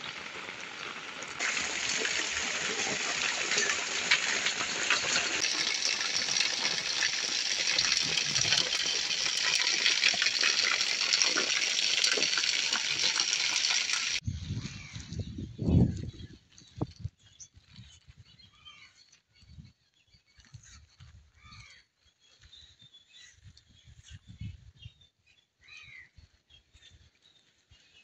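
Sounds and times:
heavy rain: 0.0s - 14.2s
water gushing from drainpipe: 0.0s - 14.2s.

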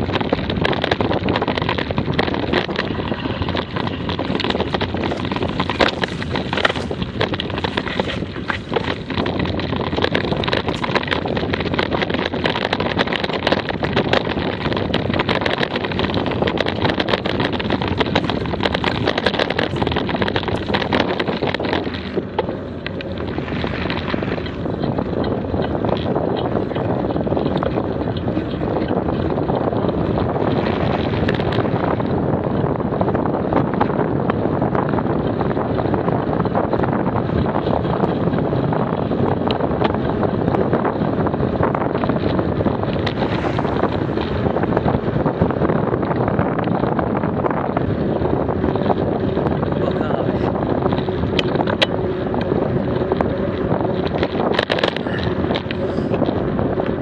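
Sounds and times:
bicycle rattling over dirt trail: 0.0s - 57.0s
wind buffeting microphone: 0.0s - 57.0s.

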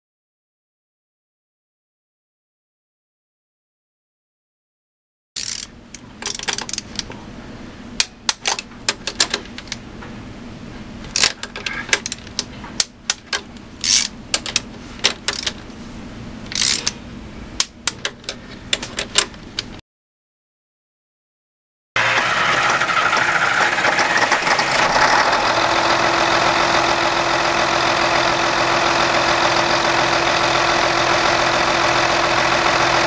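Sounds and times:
wrench clicking on metal fittings: 5.4s - 7.1s, 11.1s - 15.6s, 16.5s - 17.0s
low steady hum: 5.4s - 19.8s.

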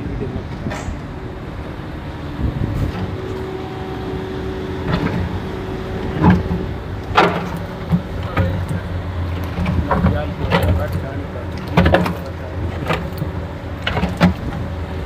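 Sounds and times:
concrete pump engine droning: 0.0s - 15.0s.

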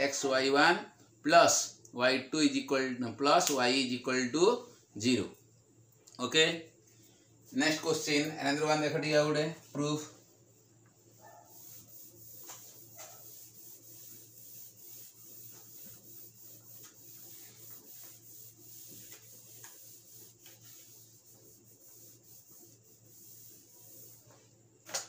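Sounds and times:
cloth wiping whiteboard: 7.4s - 25.0s.

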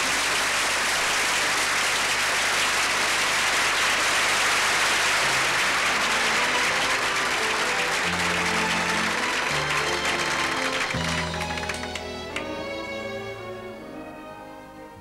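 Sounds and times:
audience applauding: 0.0s - 12.9s
orchestral music: 5.2s - 15.0s.

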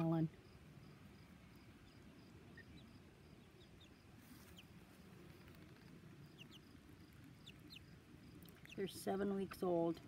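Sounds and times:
insect chirping: 0.0s - 9.5s
chicks peeping: 1.5s - 9.2s.

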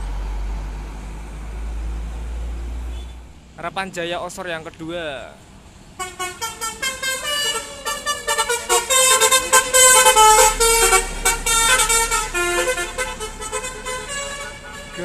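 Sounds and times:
bus engine rumble: 0.0s - 15.0s
musical air horn tune: 6.0s - 15.0s.

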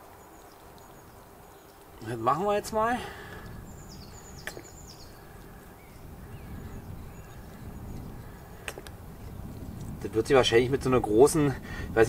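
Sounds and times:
faint high bird chirps: 3.4s - 9.8s
sharp clicks: 4.4s - 4.8s, 8.6s - 9.0s.

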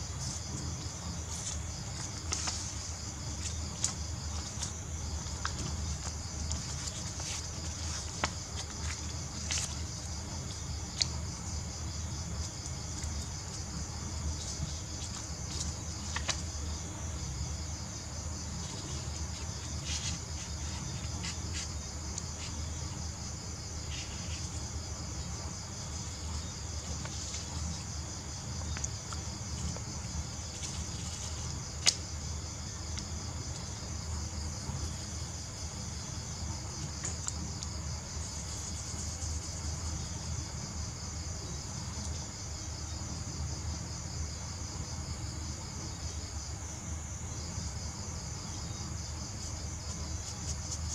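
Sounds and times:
crickets chirping: 0.0s - 50.9s
paper rustling: 0.2s - 10.1s, 18.4s - 22.8s, 23.8s - 24.8s.

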